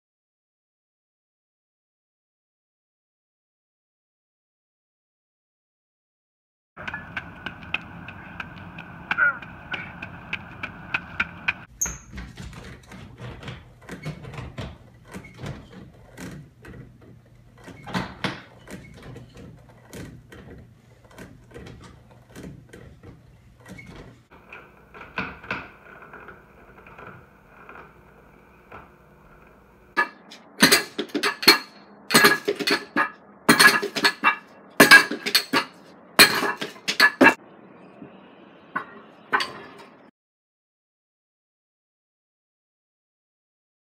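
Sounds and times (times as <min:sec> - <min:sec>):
weight plates clanking: 0:11.6 - 0:37.4, 0:38.8 - 0:40.0.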